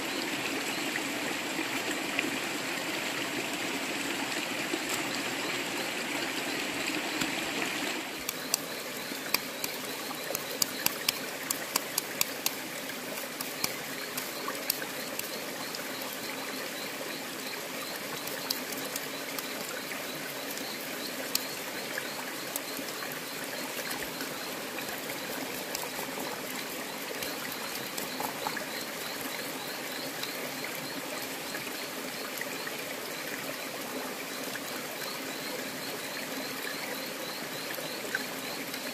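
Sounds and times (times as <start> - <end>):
stream trickling over rocks: 0.0 - 38.9
sharp clicks: 8.2 - 12.6, 13.2 - 15.4.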